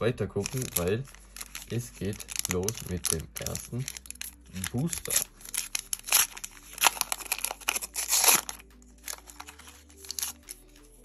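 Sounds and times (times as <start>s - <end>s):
foil pack tearing and crinkling: 0.4s - 10.7s.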